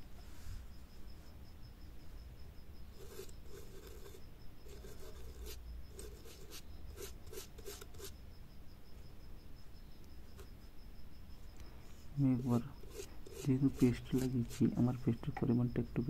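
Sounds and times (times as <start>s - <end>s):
toothbrush scrubbing circuit board: 3.0s - 8.2s, 12.2s - 15.4s.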